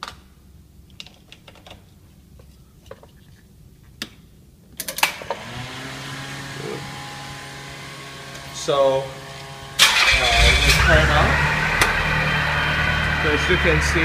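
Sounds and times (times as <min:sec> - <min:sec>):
car engine starting and idling: 0:06.4 - 0:14.0.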